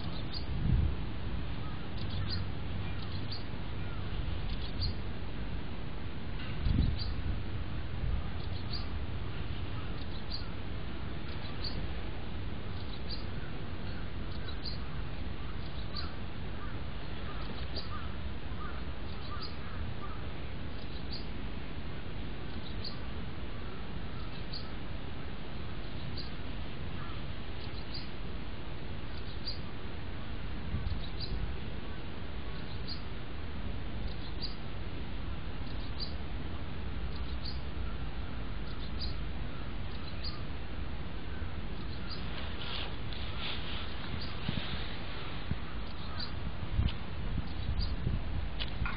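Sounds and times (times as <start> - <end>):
bird chirping: 0.0 - 0.5, 1.6 - 5.0, 6.4 - 7.2, 8.4 - 9.0, 9.6 - 10.6, 11.2 - 11.8, 12.7 - 21.3, 22.5 - 23.0, 24.1 - 24.8, 25.8 - 26.4, 27.0 - 28.2, 29.1 - 29.7, 30.8 - 31.4, 32.5 - 33.1, 34.0 - 34.6, 35.6 - 36.2, 37.1 - 40.5, 41.2 - 44.6, 45.7 - 48.9
wavering bird calls: 1.6 - 5.0, 8.4 - 10.6, 11.2 - 11.8, 12.7 - 21.4, 22.0 - 24.8, 25.8 - 28.2, 29.1 - 31.4, 32.5 - 33.1, 34.0 - 34.6, 35.6 - 36.2, 37.1 - 40.5, 41.2 - 44.6, 45.5 - 46.4, 47.4 - 48.0.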